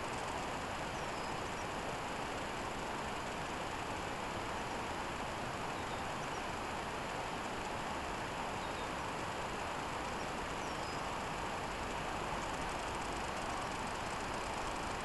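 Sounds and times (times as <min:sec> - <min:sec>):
outdoor ambient hiss: 0:00.0 - 0:15.0
faint bird chirps: 0:00.9 - 0:01.7, 0:05.7 - 0:06.5, 0:08.6 - 0:09.0, 0:10.6 - 0:11.1.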